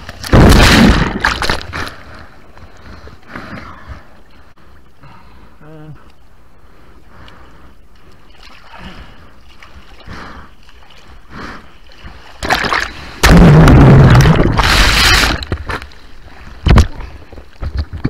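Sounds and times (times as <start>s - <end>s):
water splash: 0.0s - 2.0s, 12.2s - 15.8s
water lapping: 6.6s - 13.2s.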